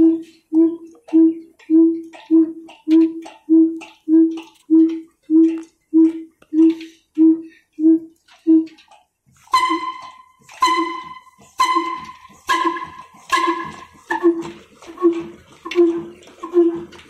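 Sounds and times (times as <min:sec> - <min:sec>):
old diesel engine exhaust beats: 0:00.0 - 0:17.0
ringing metallic tone: 0:09.5 - 0:16.9.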